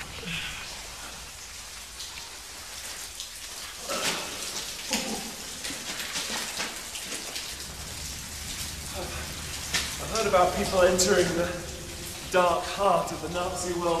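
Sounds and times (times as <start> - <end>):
water dripping on rock: 0.0 - 14.0.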